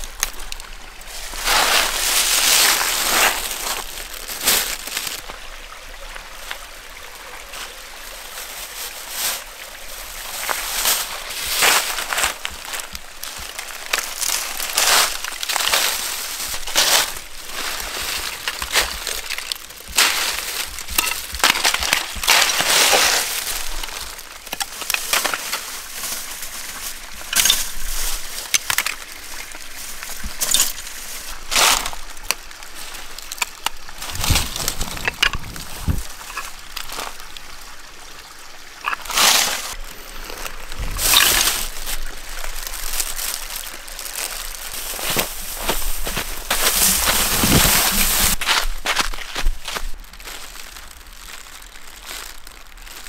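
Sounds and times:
ice clinking: 18.0s - 23.0s, 30.3s - 30.9s, 38.8s - 48.3s.

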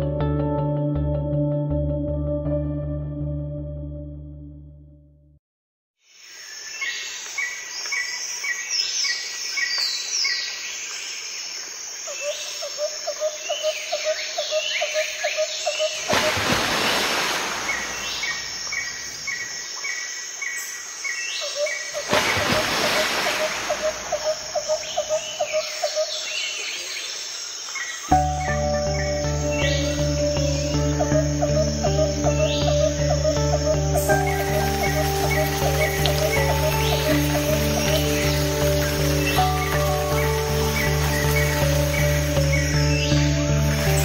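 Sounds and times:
birds chirping: 12.2s - 44.0s.

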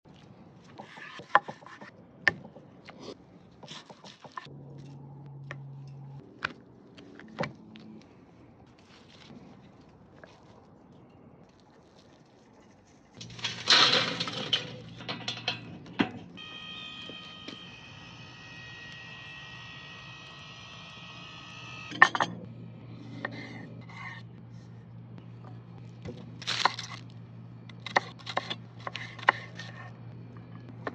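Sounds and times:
low steady hum: 4.4s - 30.9s
rotisserie motor whining: 16.3s - 22.1s.

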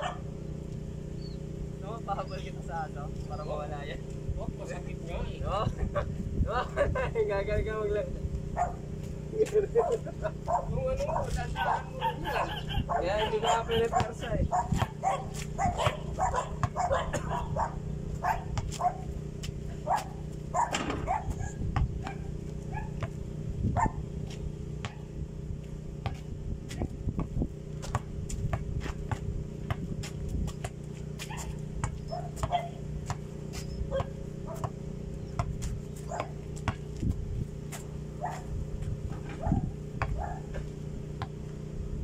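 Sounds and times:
steady low hum: 0.0s - 42.0s
basketball bouncing on dirt: 13.8s - 17.5s, 18.2s - 41.6s.

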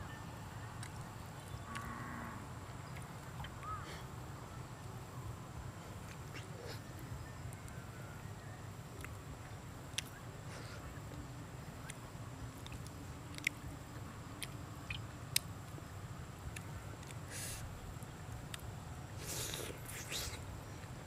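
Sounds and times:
mouth clicks and smacks: 12.6s - 13.6s, 18.5s - 20.5s
person chewing: 19.2s - 20.4s.

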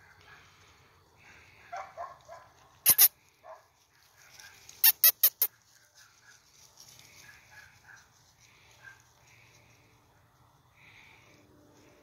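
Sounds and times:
dog barking: 1.6s - 4.6s, 7.3s - 8.1s, 8.8s - 9.0s.

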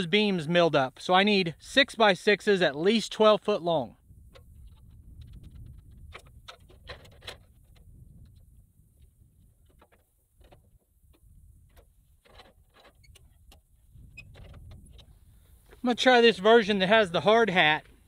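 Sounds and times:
wind rumble on microphone: 3.9s - 15.7s.

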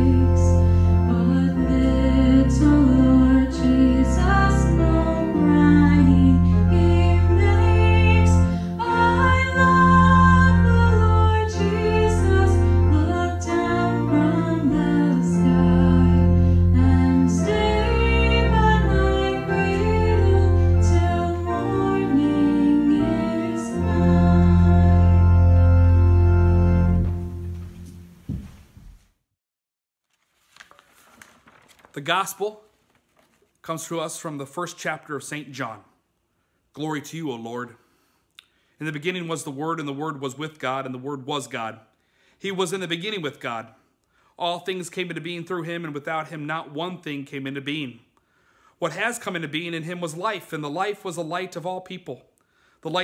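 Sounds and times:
woman singing a hymn: 0.0s - 25.4s
pipe organ: 0.0s - 28.5s.

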